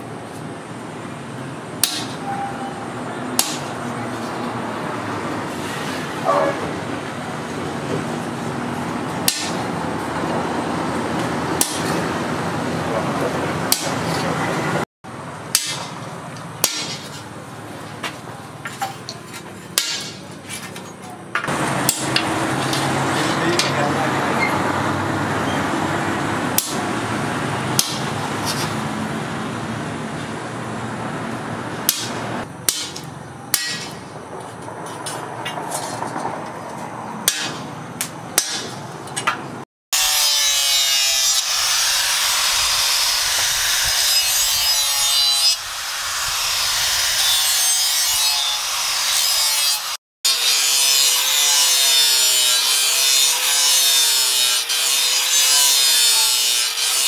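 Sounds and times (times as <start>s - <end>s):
hammer striking chisel on metal: 1.8s - 2.5s, 3.4s - 3.8s, 9.2s - 9.7s, 11.6s - 12.0s, 13.7s - 14.2s, 15.5s - 15.9s, 16.6s - 17.2s, 18.7s - 20.3s, 21.4s - 22.9s, 26.6s - 26.8s, 27.8s - 28.1s, 31.9s - 34.1s, 37.2s - 39.4s
angle grinder grinding steel: 40.0s - 57.0s.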